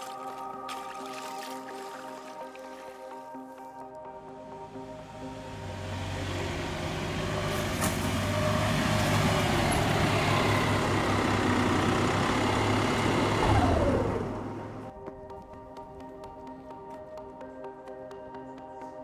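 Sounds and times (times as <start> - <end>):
vehicle passing close: 5.2 - 14.9.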